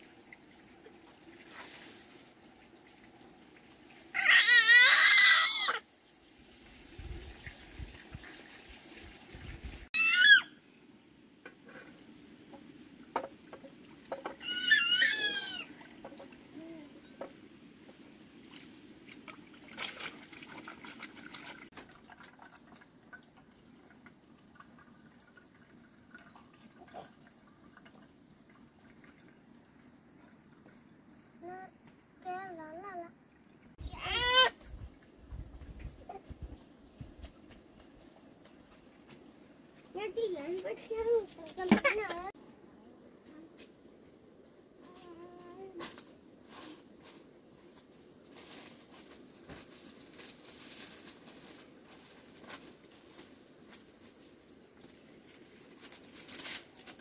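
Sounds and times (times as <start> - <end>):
high-pitched cries: 4.1 - 5.8, 9.9 - 10.6, 14.4 - 15.7, 33.8 - 34.6
water splashing in a basin: 6.4 - 10.4, 11.9 - 31.3.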